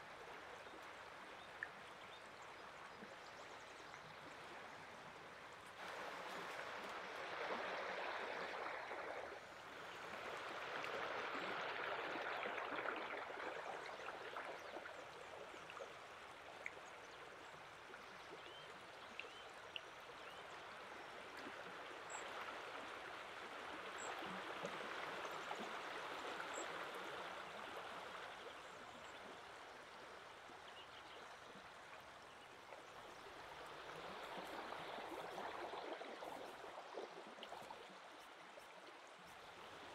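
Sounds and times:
stream running over pebbles: 0.0 - 39.9.

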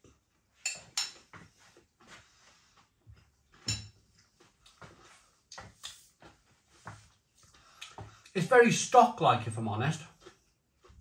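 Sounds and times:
dishes and cutlery clicking: 0.6 - 1.3, 3.6 - 4.0.

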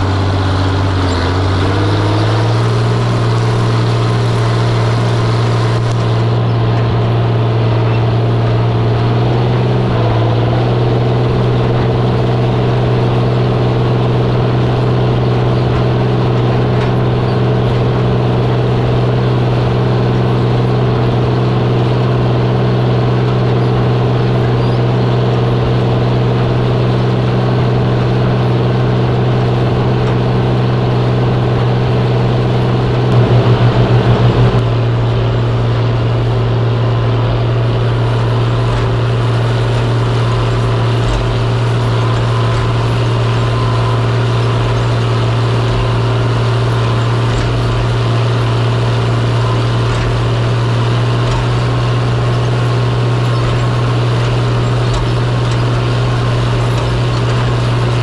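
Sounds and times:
tractor diesel engine running: 0.0 - 58.0
brief throbbing pulse: 33.1 - 34.9.

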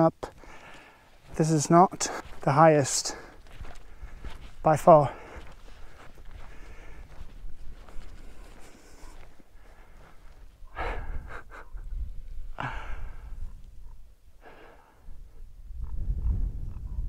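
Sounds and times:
person breathing heavily: 0.2 - 1.3, 2.0 - 2.4, 3.0 - 11.8, 12.4 - 13.5, 14.4 - 15.4
wind buffeting microphone: 3.2 - 14.1, 15.0 - 17.0.

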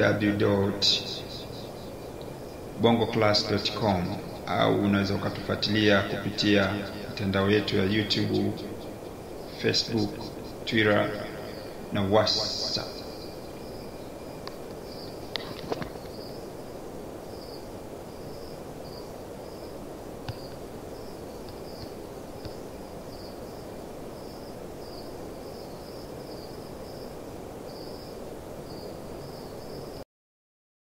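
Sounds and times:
insects chirping: 0.0 - 30.0
steady background hiss: 0.0 - 30.0
faint clicks: 14.4 - 16.1.

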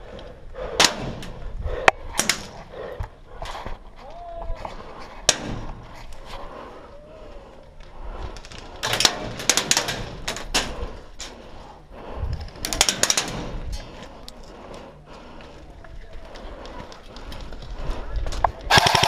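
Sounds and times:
airsoft gunshots: 18.7 - 19.0.

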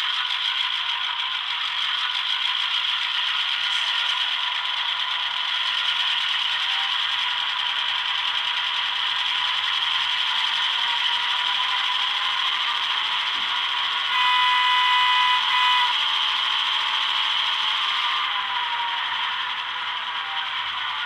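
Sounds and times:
model diesel engine sound: 0.0 - 21.0
multi-tone locomotive horn: 13.9 - 19.3.

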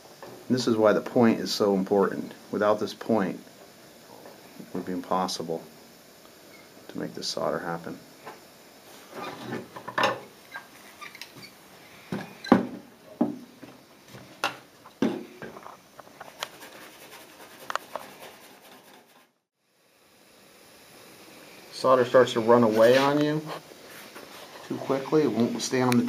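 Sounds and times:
soldering tools knocking on metal: 14.4 - 15.6.

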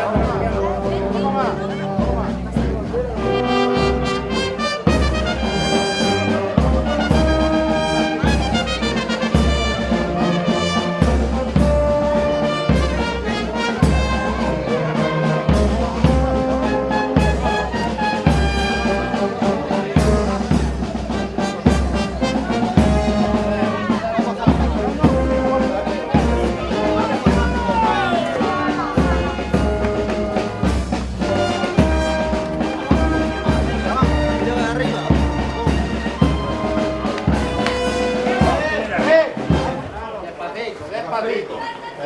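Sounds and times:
brass band playing: 0.0 - 40.3.

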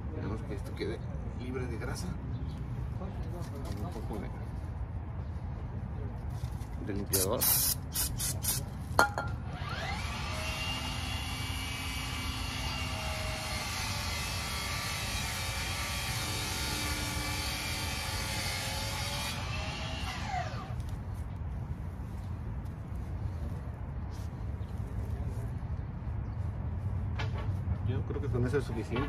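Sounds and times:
spray cleaner hissing: 7.2 - 8.6
small motor whining: 9.5 - 20.8.

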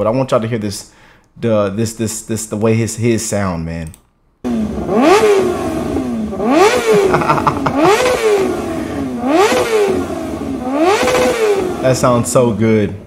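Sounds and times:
motorcycle engine revving: 4.4 - 12.4.

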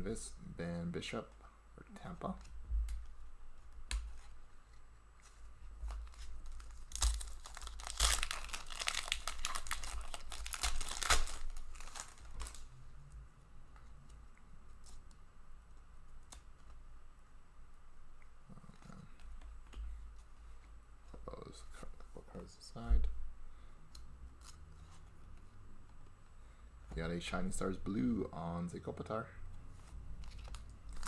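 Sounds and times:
wrapper tearing and crinkling: 5.9 - 12.7, 30.2 - 31.0.

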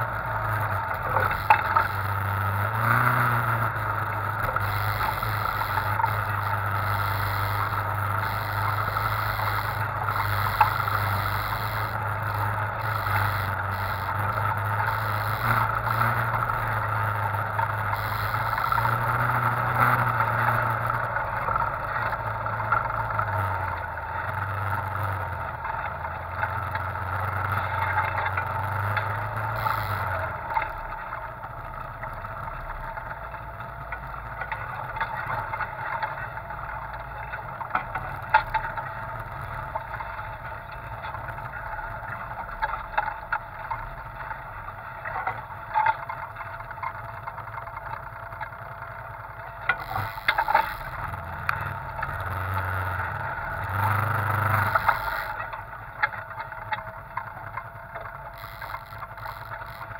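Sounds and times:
off-road vehicle engine running: 0.0 - 59.9.

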